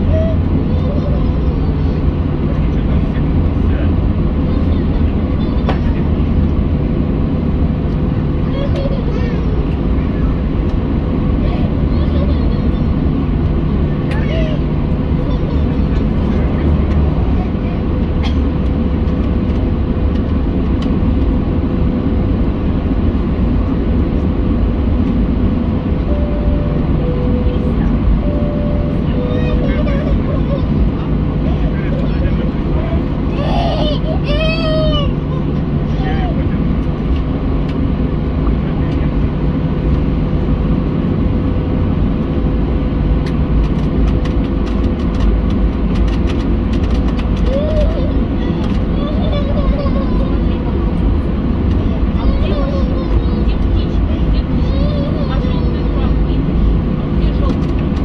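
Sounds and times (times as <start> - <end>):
jet engines rumbling in cabin: 0.0 - 58.0
steady hum: 9.5 - 47.0.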